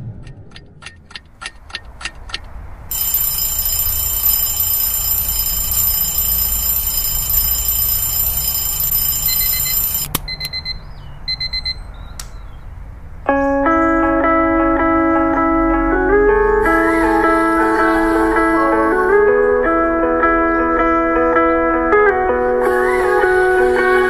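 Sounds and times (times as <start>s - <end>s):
mechanical alarm clock ticking: 1.1s - 10.1s
alarm clock ringing: 2.9s - 10.1s
short high electronic beeps: 2.9s - 11.8s.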